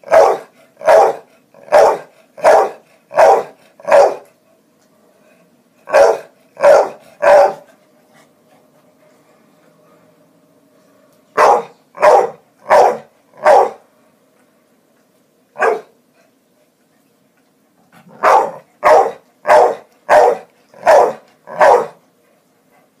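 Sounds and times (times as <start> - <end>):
dog barking: 0.0 - 4.3, 5.9 - 7.7, 11.4 - 13.8, 15.6 - 15.9, 18.1 - 22.0.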